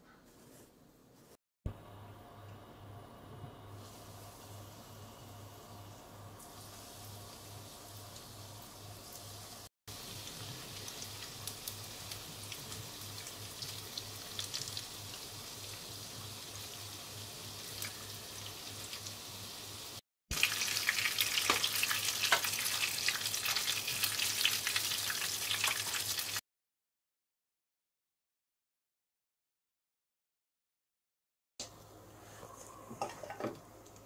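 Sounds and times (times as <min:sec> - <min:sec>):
food sizzling in frying oil: 0:03.8 - 0:26.4.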